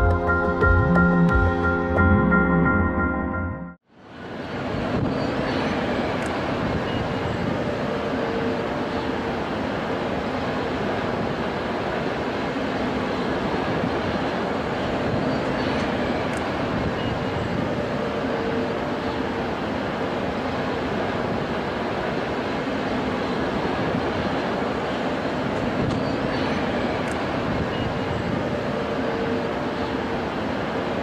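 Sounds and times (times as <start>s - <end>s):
jet engines at takeoff power: 3.9s - 31.0s.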